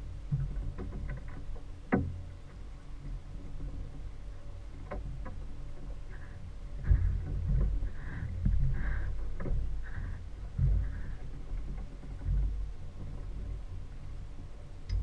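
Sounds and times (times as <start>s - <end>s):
water sloshing: 0.0s - 15.0s
outboard motor idling: 6.0s - 13.6s.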